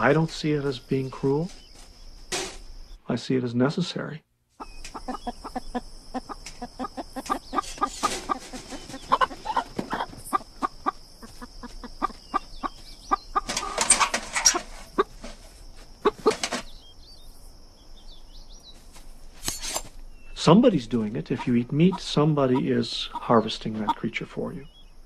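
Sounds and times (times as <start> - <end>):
chickens clucking: 4.6 - 16.7, 20.4 - 24.7
wings flapping: 4.8 - 16.7.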